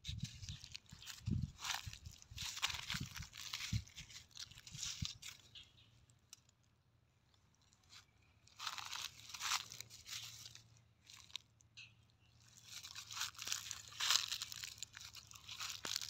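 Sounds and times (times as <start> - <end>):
footsteps crunching dry leaves: 0.0 - 5.6, 7.8 - 11.4, 12.4 - 16.0.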